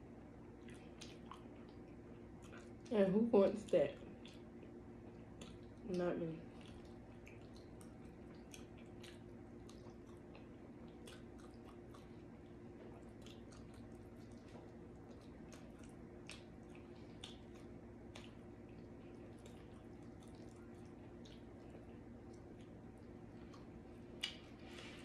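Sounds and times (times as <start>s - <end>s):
low steady hum: 0.0s - 25.0s
close-up chewing mouth smacks: 0.5s - 2.9s, 3.6s - 24.8s.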